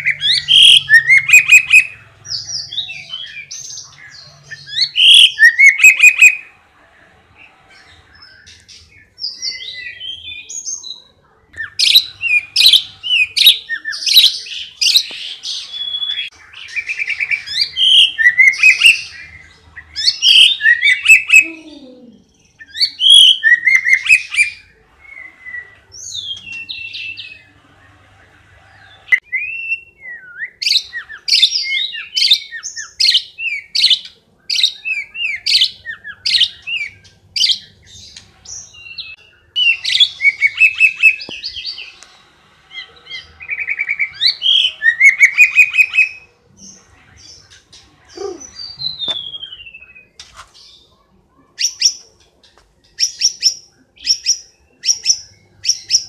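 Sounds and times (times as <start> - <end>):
songbird singing whistled phrases: 0.0 - 3.6, 4.5 - 6.5, 11.6 - 21.8, 22.5 - 27.3, 29.1 - 41.8, 42.7 - 46.3, 48.2 - 50.2.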